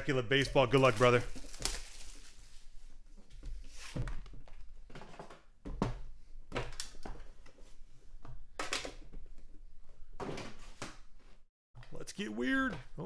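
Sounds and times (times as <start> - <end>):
cardboard rustling and scraping: 0.4 - 5.3.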